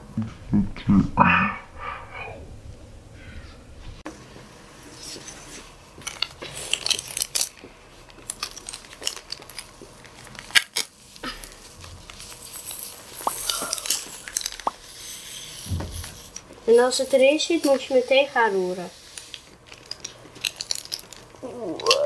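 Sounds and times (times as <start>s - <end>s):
plastic sachets crinkling and tearing: 6.0s - 22.0s.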